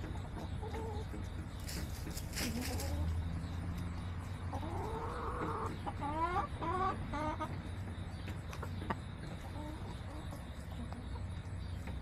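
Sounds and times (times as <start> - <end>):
chicken calling: 0.0 - 3.2, 4.5 - 7.7.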